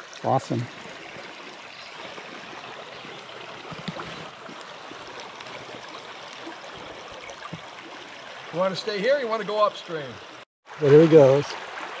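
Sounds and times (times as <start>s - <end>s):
creek water flowing: 0.0s - 12.0s.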